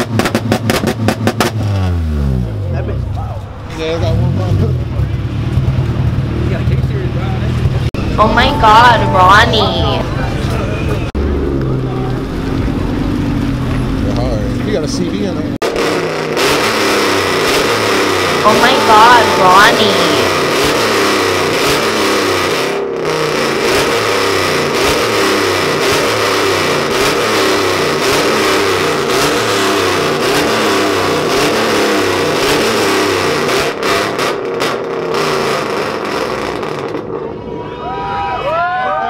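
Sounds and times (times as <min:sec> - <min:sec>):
vehicle engine revving: 0:10.2 - 0:37.1.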